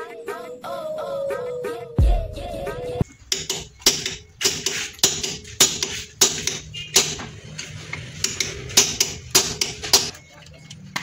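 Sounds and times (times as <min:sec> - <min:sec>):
hammer striking steel bar: 0:03.3 - 0:07.3, 0:08.2 - 0:10.1.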